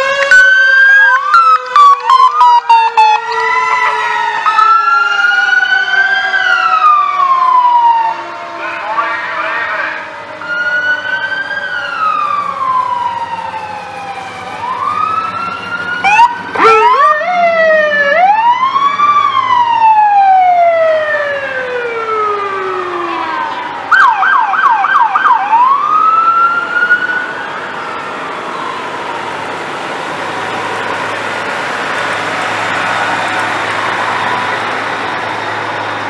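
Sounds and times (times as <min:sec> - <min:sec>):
sharp siren bursts: 0:00.0 - 0:29.3
siren yelps: 0:00.0 - 0:31.2
sirens wailing: 0:00.0 - 0:36.0.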